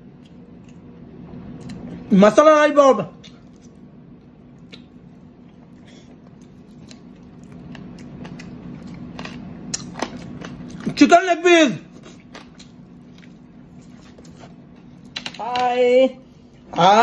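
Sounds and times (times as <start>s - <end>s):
steady low hum: 0.0s - 17.0s
faint chewing: 3.2s - 11.0s, 11.9s - 15.2s.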